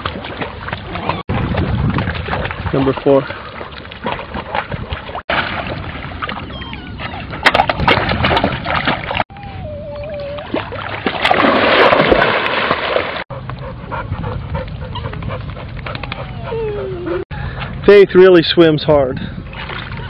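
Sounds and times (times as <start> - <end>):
dogs splashing in water: 0.0 - 9.3, 10.1 - 13.3, 19.5 - 20.0
churning water: 0.0 - 20.0
puppy whining: 6.4 - 7.4, 9.3 - 10.7, 14.8 - 17.3.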